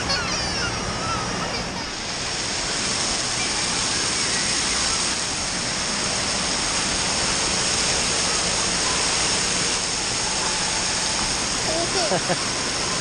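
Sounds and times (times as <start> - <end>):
falling splashing water: 0.0 - 13.0.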